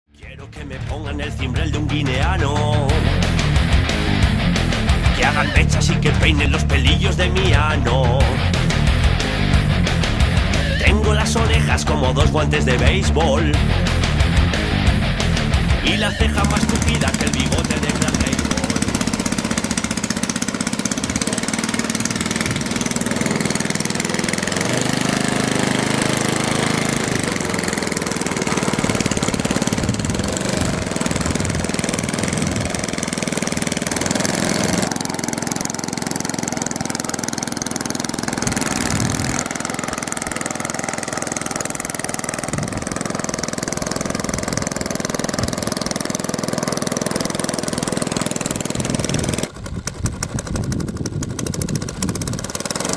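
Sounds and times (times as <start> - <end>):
model plane engine running: 15.5 - 52.9.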